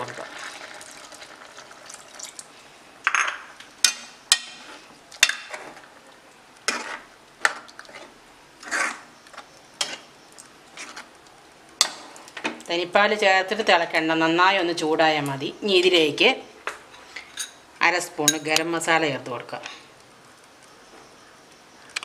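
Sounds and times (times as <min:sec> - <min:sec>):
ladle stirring thick curry: 0:06.6 - 0:11.1.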